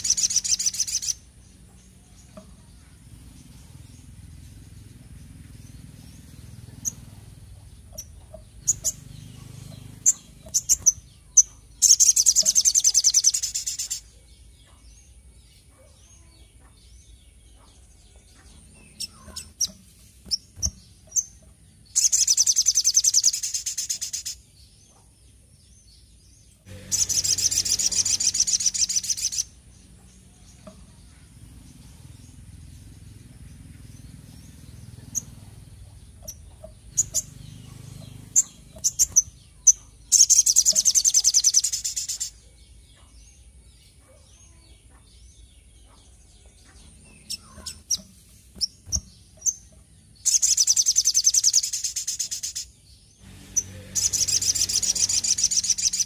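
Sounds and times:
bird trilling: 0.0 - 1.3, 7.8 - 14.1, 18.8 - 24.4, 26.7 - 29.6, 34.1 - 42.4, 47.2 - 52.7, 53.5 - 56.0
bird chirps and ticks: 0.0 - 25.3, 26.5 - 52.8, 53.5 - 56.0.

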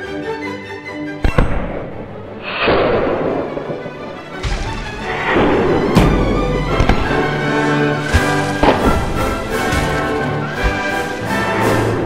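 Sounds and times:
orchestral music: 0.0 - 12.0
potato cannon bangs: 4.4 - 11.1.

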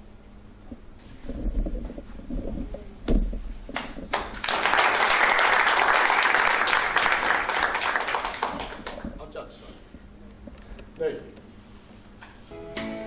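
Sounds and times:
congregation applauding: 3.8 - 9.1.

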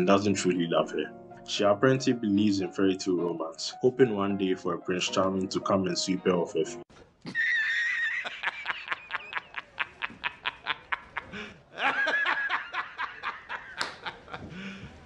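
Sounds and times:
man laughing hysterically: 7.3 - 15.0.

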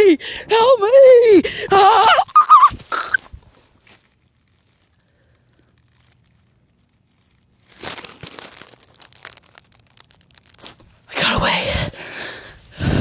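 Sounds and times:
dry grass crackling and rustling: 2.3 - 11.4.

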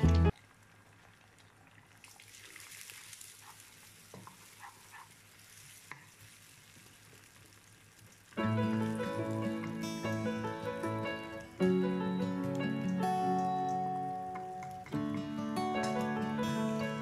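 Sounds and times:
background music: 0.0 - 0.3, 8.4 - 17.0
egg sizzling in oil: 0.4 - 10.9.

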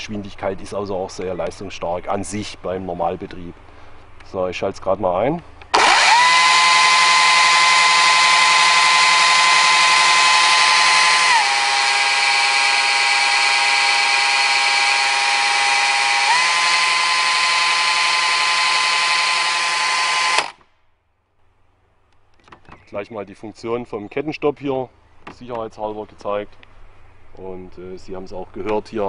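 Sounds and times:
electric chainsaw whining: 5.7 - 20.6.

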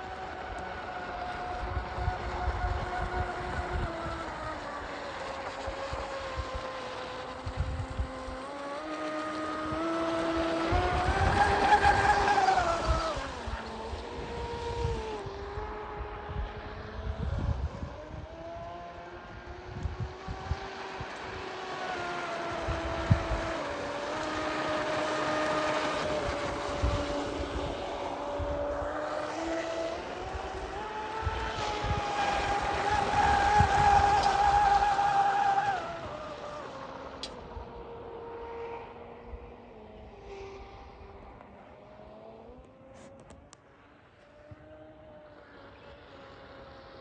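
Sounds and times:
wind buffeting microphone: 0.0 - 43.2
speedboat electric motor whining: 0.0 - 43.8.

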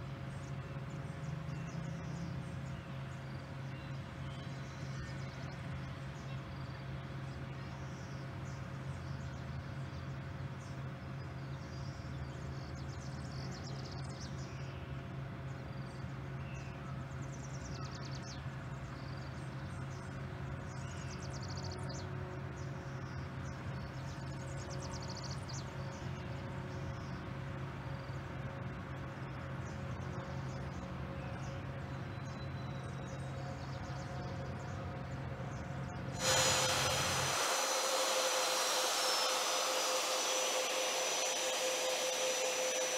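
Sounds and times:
jet engines rumbling and whining: 33.7 - 42.9.

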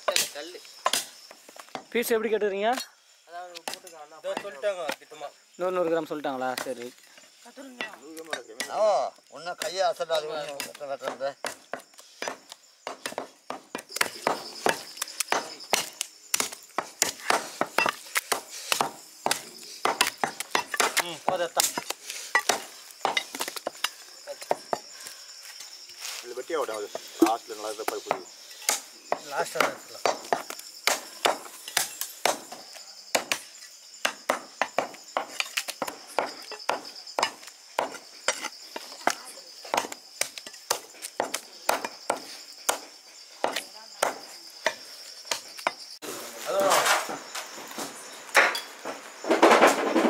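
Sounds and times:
night insects chirring: 0.0 - 50.0
cleavers chopping meat on wood: 9.6 - 24.9, 27.2 - 45.8.

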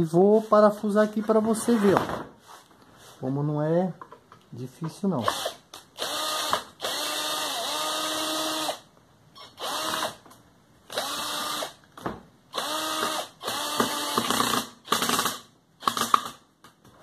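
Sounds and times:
power drill driving a screw: 5.2 - 8.8, 9.4 - 10.2, 10.9 - 11.8, 12.5 - 16.4.

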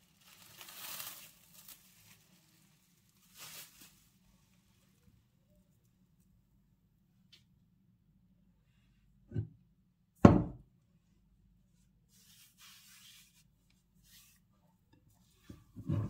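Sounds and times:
faint rustle: 0.0 - 5.0.

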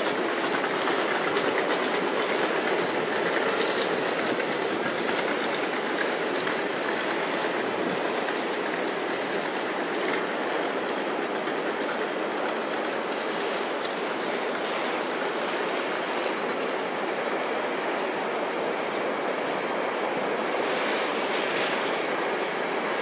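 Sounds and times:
train wheels rumbling on rail: 0.0 - 23.0
faint high wheel squeal: 11.2 - 14.4.

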